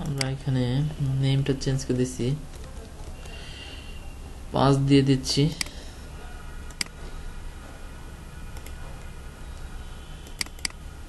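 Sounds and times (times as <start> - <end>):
low hum and hiss: 0.0 - 11.0
computer mouse clicks: 6.7 - 7.0, 8.6 - 8.8, 10.2 - 10.8.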